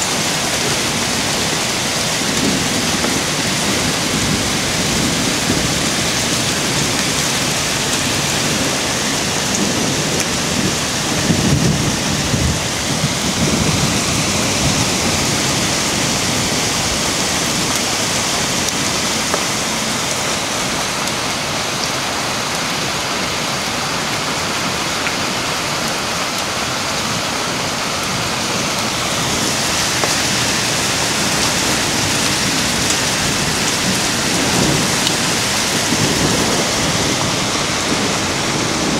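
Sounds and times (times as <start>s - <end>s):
hail and rain pelting: 0.0s - 38.9s.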